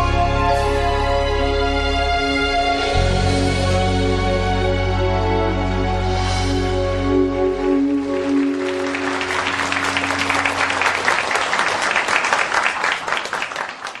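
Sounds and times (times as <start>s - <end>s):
audience applause: 7.6s - 14.0s.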